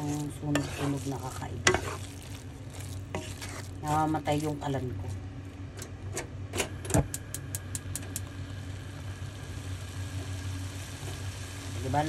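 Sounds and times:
steady low hum: 0.0s - 12.0s
stove igniter clicking: 6.8s - 8.3s.

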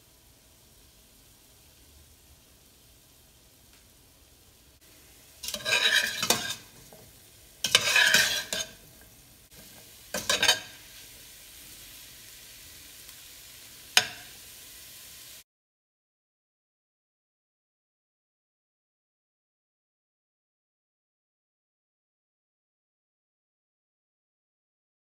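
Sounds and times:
frying sizzle: 0.0s - 15.4s
spatula scraping a metal pot: 5.4s - 8.8s, 9.7s - 10.8s.

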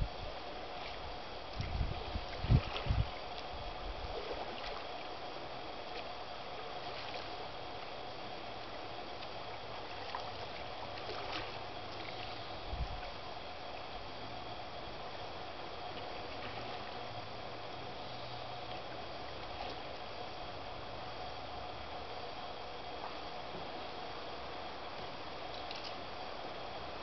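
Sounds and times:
steady hiss: 0.0s - 27.0s
paddle splashing in water: 4.1s - 4.9s, 9.2s - 12.4s.

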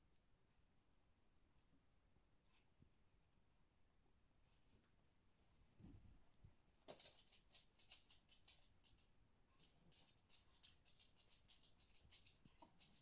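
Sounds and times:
paws scratching on fabric: 6.9s - 13.0s.

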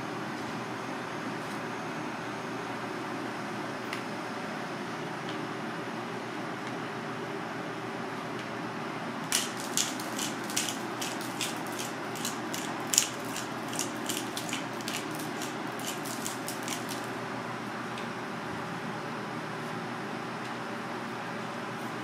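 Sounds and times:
steady background hum: 0.0s - 22.0s
pepper grinder clicking: 9.3s - 17.1s.

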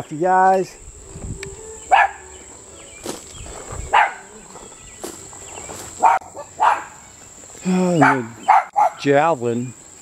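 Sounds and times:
high-pitched insect buzz: 0.6s - 8.0s
dog barks: 1.9s - 2.2s, 3.9s - 4.3s, 6.0s - 7.0s, 8.0s - 9.0s.

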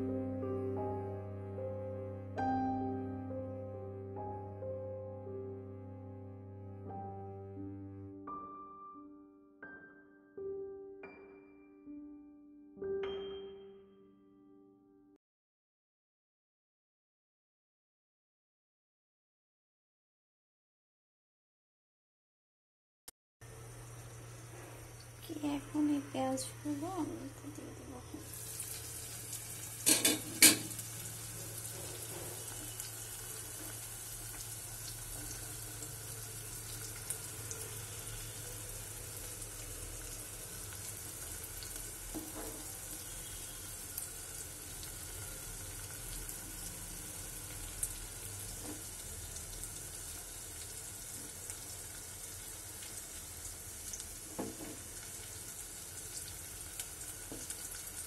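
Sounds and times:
curry sizzling in a pot: 23.5s - 58.0s.

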